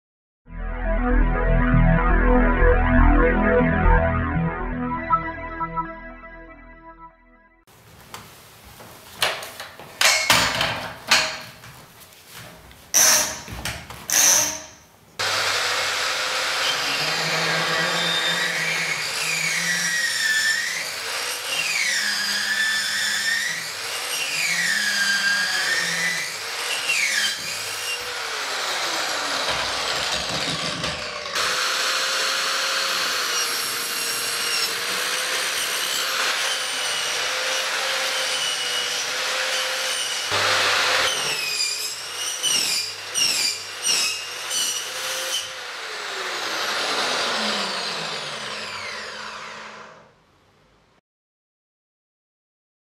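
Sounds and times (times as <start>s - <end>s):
electric pipe saw cutting pipe: 14.1s - 50.2s.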